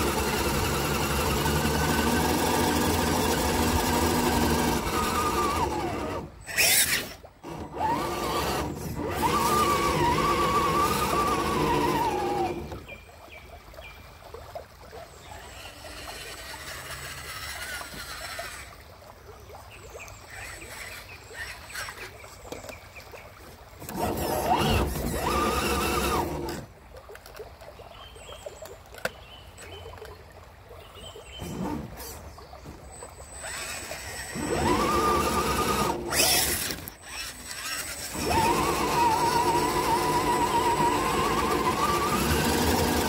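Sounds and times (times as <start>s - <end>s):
electric motors whining: 0.0s - 12.9s, 15.4s - 18.9s, 20.3s - 22.2s, 23.8s - 26.7s, 31.4s - 32.3s, 33.2s - 43.0s.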